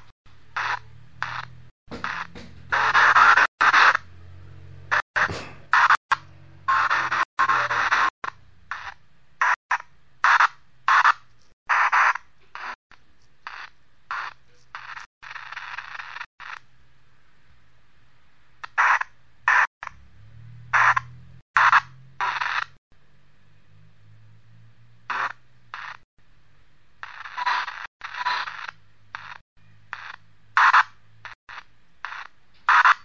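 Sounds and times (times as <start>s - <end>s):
radio static bursts: 0.0s - 4.1s, 4.9s - 12.8s, 13.5s - 16.6s, 18.6s - 20.0s, 20.7s - 22.8s, 25.1s - 26.0s, 27.0s - 33.0s.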